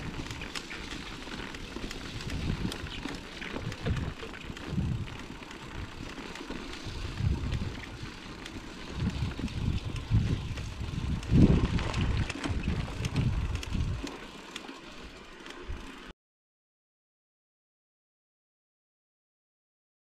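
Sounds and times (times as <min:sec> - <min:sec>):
wind buffeting microphone: 0:00.0 - 0:06.1, 0:06.9 - 0:14.2
bike rattling clicks: 0:00.0 - 0:16.1
bike tyres rolling on ground: 0:00.0 - 0:16.1.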